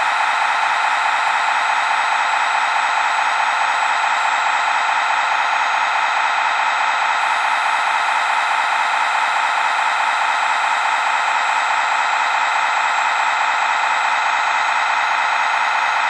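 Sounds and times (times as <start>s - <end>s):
electric hydraulic pump whirring: 0.0s - 16.0s.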